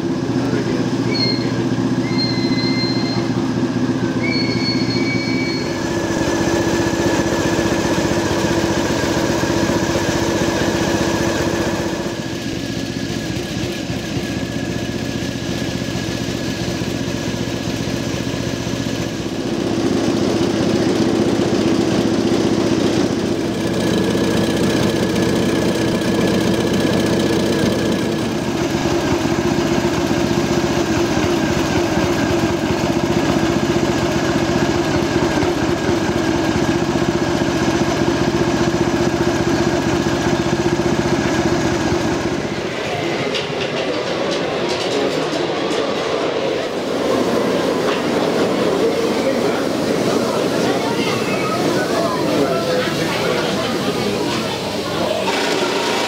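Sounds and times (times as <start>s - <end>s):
small locomotive engine idling: 0.0s - 56.0s
short high squeaks: 1.0s - 3.4s, 4.2s - 5.8s.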